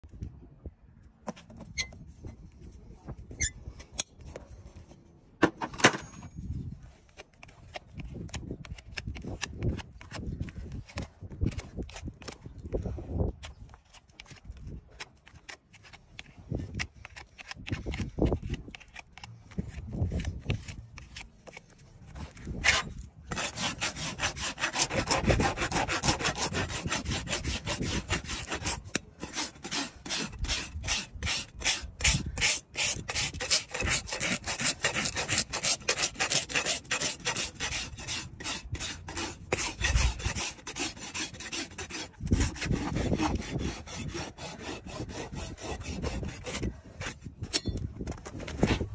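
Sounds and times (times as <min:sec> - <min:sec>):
hoof rasp scraping: 0:01.3 - 0:02.5, 0:15.2 - 0:48.9.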